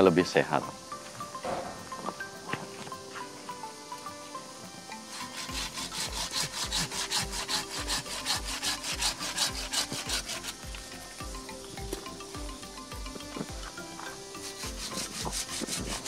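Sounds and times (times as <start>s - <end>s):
hand saw cutting branch: 5.1s - 11.0s, 14.3s - 16.0s.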